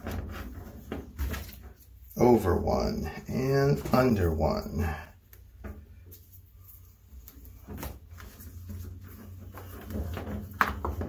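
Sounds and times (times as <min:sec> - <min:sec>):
rope rustling: 0:05.2 - 0:11.0.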